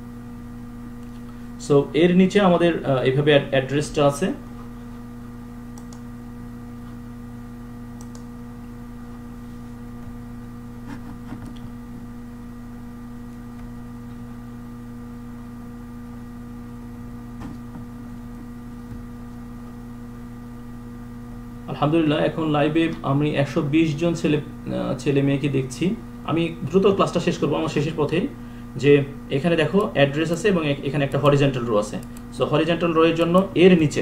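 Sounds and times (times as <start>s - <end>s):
electrical hum: 0.0s - 34.0s
faint clicks: 5.8s - 6.0s, 8.0s - 8.3s.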